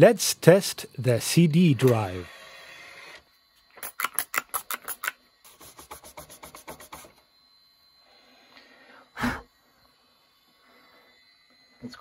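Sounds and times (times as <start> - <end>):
spray bottle misting: 3.8 - 7.2
rubbing strokes on plastic: 5.5 - 7.2.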